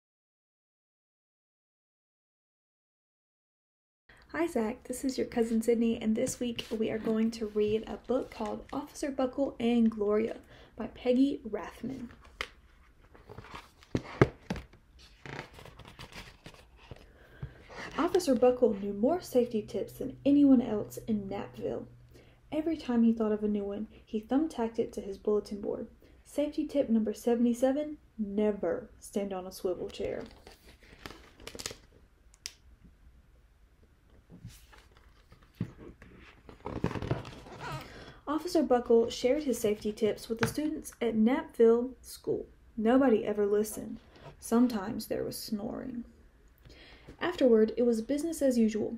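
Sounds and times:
paper rustling: 6.2s - 8.9s, 12.0s - 17.1s, 30.0s - 31.9s, 34.4s - 38.0s
book pages turning: 6.2s - 9.0s, 12.0s - 18.4s, 29.8s - 31.9s, 34.3s - 38.0s
book knocking: 13.9s - 14.8s.

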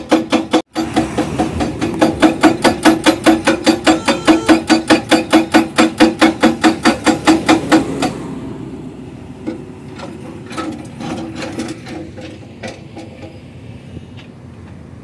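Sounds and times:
irregular knocks: 0.0s - 8.2s
hydraulic breaker hammering rock: 0.0s - 8.3s, 9.4s - 13.4s
low engine rumble: 0.7s - 15.0s.

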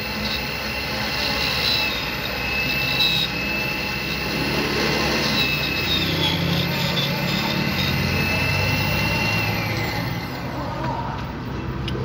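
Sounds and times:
key cutting machine grinding: 0.0s - 10.8s.

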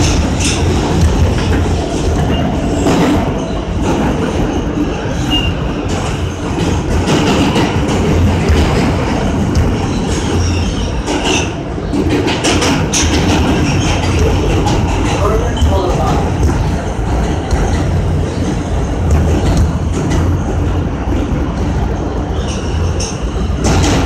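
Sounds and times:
subway train rumbling in tunnel: 0.0s - 24.0s.

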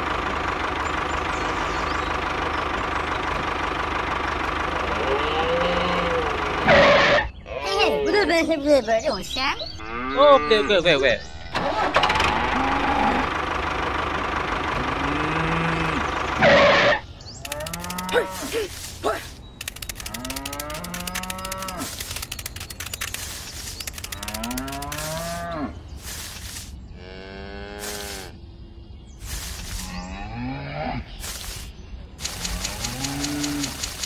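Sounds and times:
cattle mooing: 4.9s - 7.9s, 9.8s - 11.0s, 12.4s - 13.3s, 14.7s - 18.8s, 20.1s - 22.0s, 24.1s - 25.8s, 27.0s - 28.4s, 29.6s - 31.2s, 32.4s - 33.8s.

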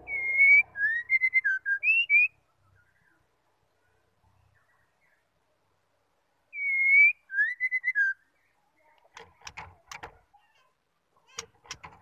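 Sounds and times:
bird whistling: 0.0s - 2.4s, 6.5s - 8.2s.

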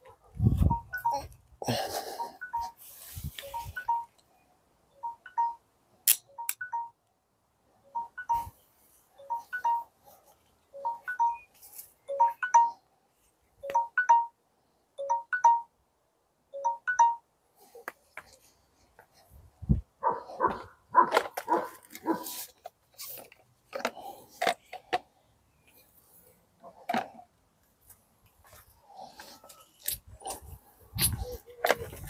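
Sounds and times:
mobile phone ringing: 0.6s - 1.3s, 2.1s - 2.8s, 3.4s - 4.2s, 5.0s - 5.6s, 6.3s - 7.0s, 7.9s - 8.6s, 9.2s - 9.9s, 10.8s - 12.8s, 13.6s - 14.4s, 15.0s - 15.7s, 16.6s - 17.2s.

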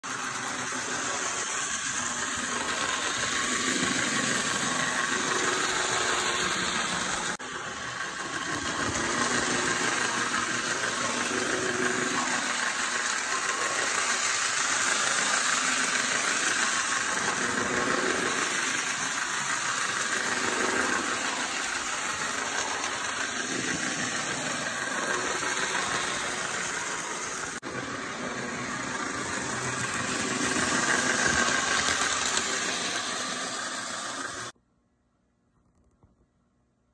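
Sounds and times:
small electric motor whirring: 0.0s - 34.6s
model train wheels rattling: 0.1s - 34.5s.

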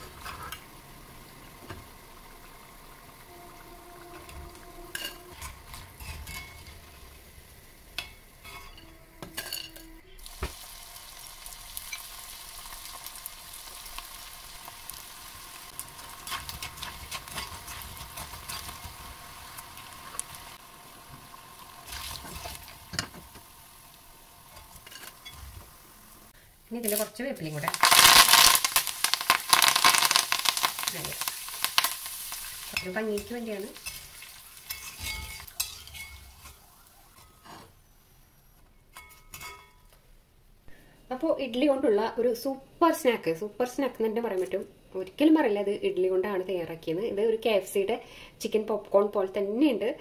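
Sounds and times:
food sizzling in hot oil: 0.0s - 37.4s
metal spoon clinking on pan: 34.7s - 36.5s, 38.9s - 39.9s.

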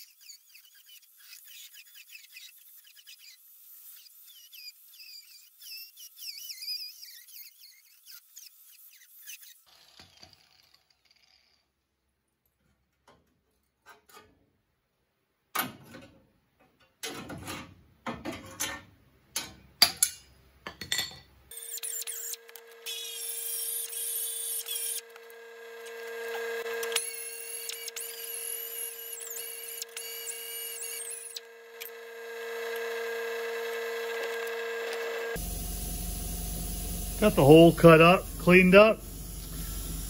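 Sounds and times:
cut-off wheel whining: 21.5s - 40.0s.

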